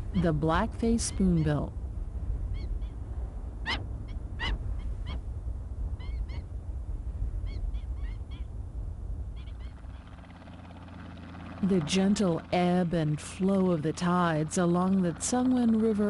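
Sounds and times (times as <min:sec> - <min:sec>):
steady low rumble: 0:00.0 - 0:16.0
waterbirds calling: 0:03.7 - 0:05.2, 0:09.4 - 0:10.2.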